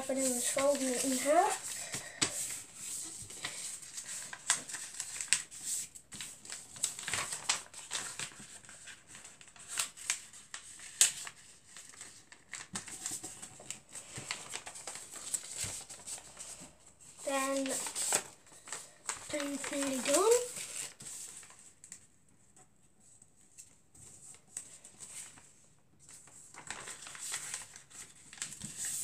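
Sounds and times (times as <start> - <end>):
paper rustling and crinkling: 0.0 - 29.0
sharp clicks of paper creasing: 3.2 - 22.0.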